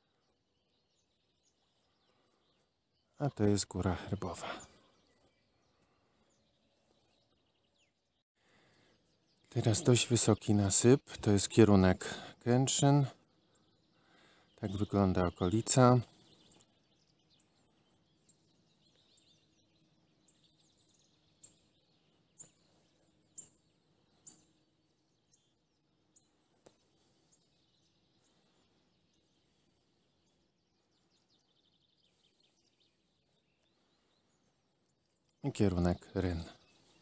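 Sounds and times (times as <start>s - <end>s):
faint bird calls: 11.1s - 37.0s.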